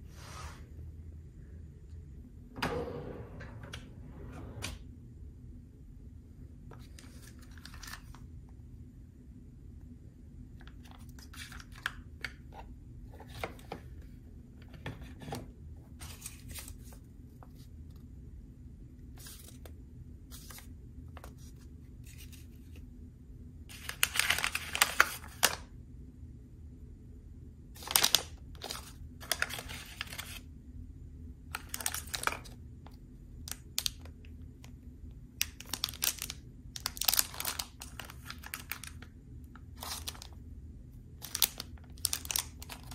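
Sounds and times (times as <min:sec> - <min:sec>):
low hum: 0:00.0 - 0:10.7
plastic wrappers crinkling: 0:27.8 - 0:30.4, 0:31.5 - 0:32.6, 0:35.4 - 0:39.1, 0:39.7 - 0:40.4, 0:41.2 - 0:42.9.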